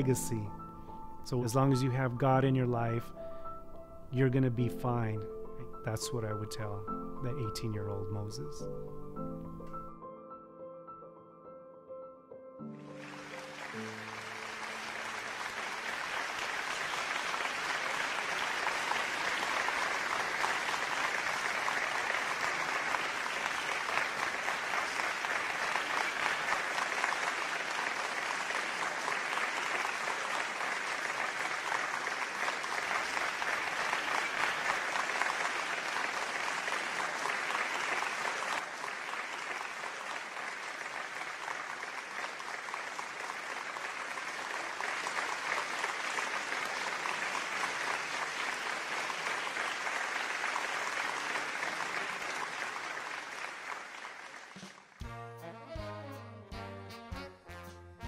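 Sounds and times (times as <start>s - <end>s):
audience clapping: 0.0s - 3.0s, 12.8s - 55.2s.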